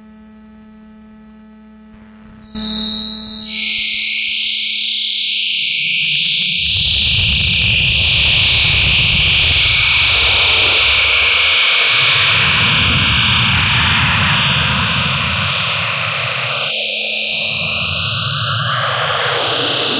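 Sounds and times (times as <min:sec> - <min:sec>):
high hissing electronic tone: 0:02.3 - 0:04.6.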